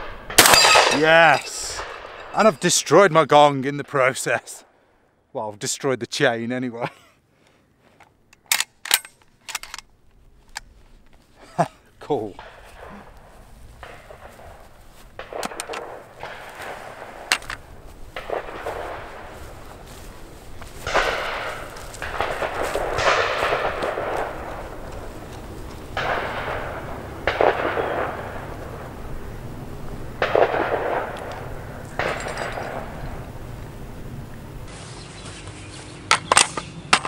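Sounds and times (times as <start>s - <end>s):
distant gunshots echoing: 0.0s - 2.5s, 12.4s - 33.5s.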